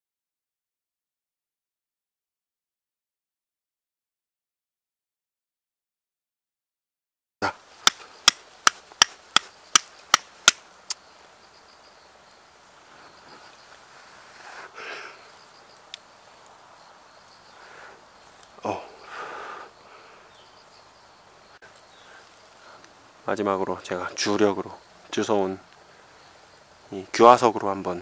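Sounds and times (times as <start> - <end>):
fire striker clicking on stone: 7.8 - 10.6.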